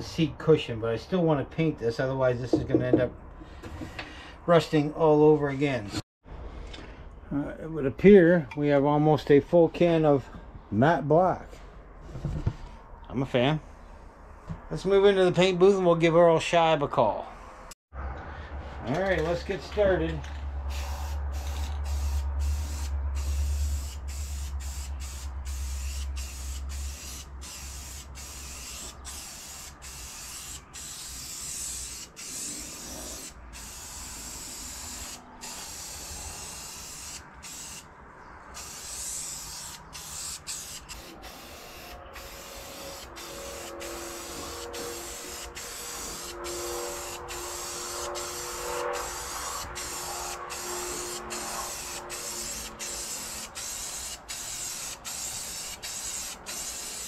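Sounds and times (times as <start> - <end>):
spray paint can hissing: 20.7 - 37.9, 38.5 - 57.0.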